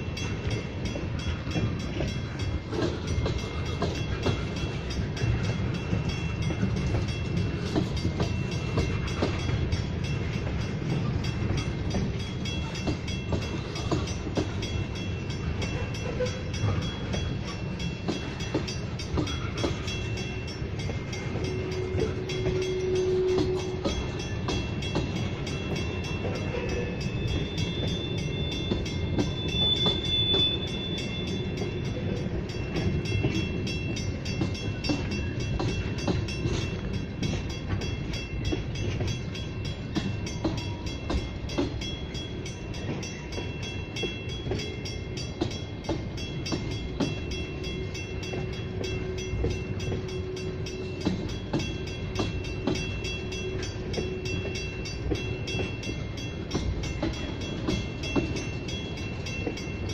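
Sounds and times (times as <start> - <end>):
freight train wheels rumbling on rail: 0.0 - 59.9
rail clicking: 0.0 - 59.9.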